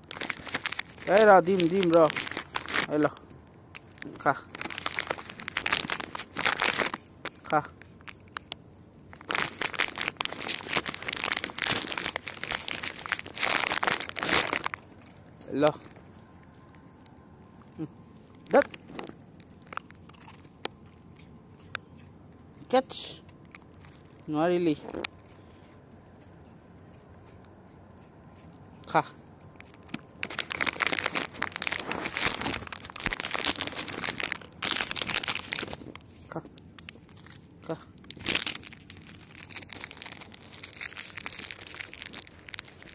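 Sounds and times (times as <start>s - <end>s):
plastic packet crinkling: 0.0s - 16.0s, 16.6s - 20.9s, 29.5s - 42.9s.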